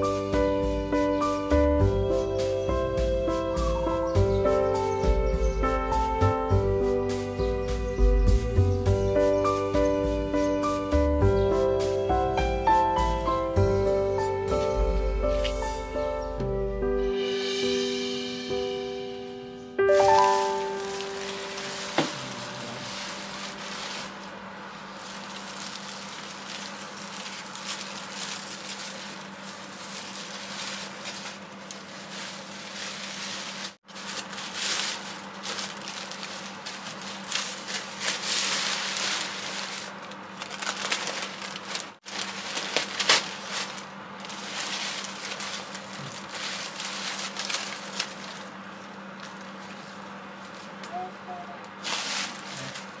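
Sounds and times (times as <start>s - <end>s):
plastic bags and paper rustling: 19.9s - 53.0s.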